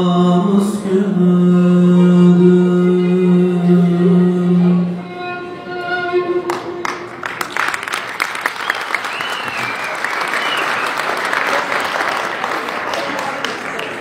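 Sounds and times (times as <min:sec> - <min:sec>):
man singing lament: 0:00.0 - 0:05.1
audience applauding: 0:06.5 - 0:14.0
whistles: 0:08.5 - 0:11.2.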